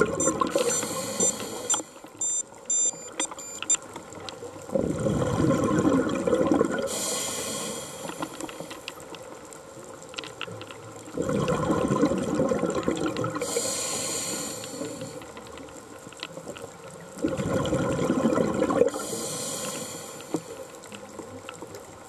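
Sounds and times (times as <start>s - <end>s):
exhaled bubbles gurgling: 0.0s - 1.7s, 4.6s - 8.7s, 11.0s - 15.2s, 16.8s - 22.0s
regulator inhalation hiss: 0.5s - 1.9s, 6.9s - 8.8s, 13.4s - 15.2s, 19.0s - 20.7s.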